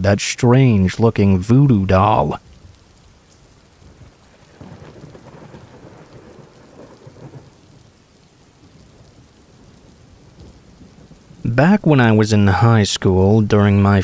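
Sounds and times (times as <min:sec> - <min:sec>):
steady rain falling: 0:00.0 - 0:14.0
low roll of thunder: 0:02.4 - 0:12.0.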